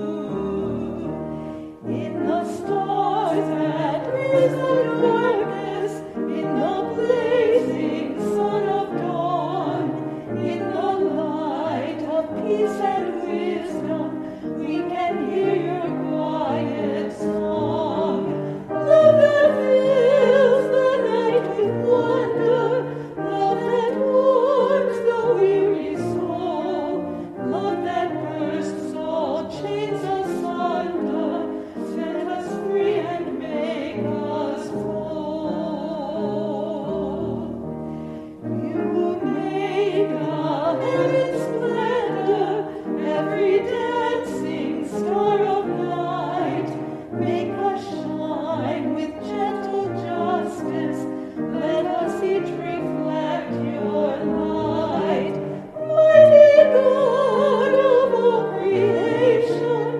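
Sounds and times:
instrumental accompaniment: 53.9 - 59.9
person singing: 55.8 - 59.7.

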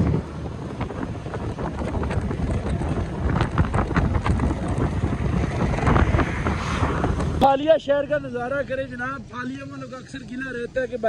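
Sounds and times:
wind buffeting microphone: 0.0 - 7.5
rickshaw engine running: 0.0 - 11.0.

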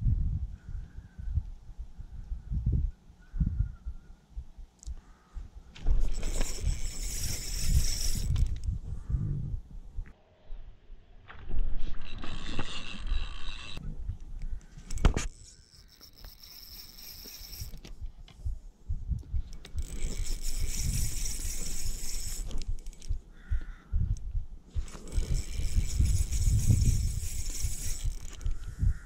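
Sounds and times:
wind buffeting microphone: 0.0 - 10.2, 17.3 - 29.0
fishing reel whirring: 6.0 - 8.7, 12.0 - 13.8, 14.8 - 17.9, 19.5 - 23.8, 24.8 - 29.0.

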